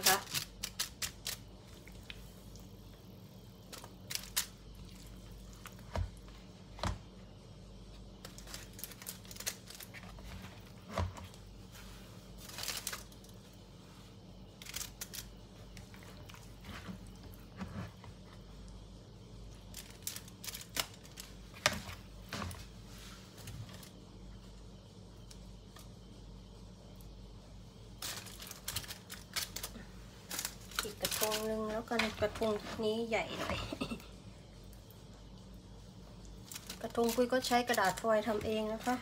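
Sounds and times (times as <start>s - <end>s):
foil crinkling: 0.0s - 1.7s, 3.5s - 6.0s, 8.1s - 10.9s, 11.8s - 13.6s, 14.5s - 17.6s, 19.6s - 24.0s, 28.0s - 34.0s, 36.3s - 39.0s
faint steady low hum: 0.0s - 39.0s.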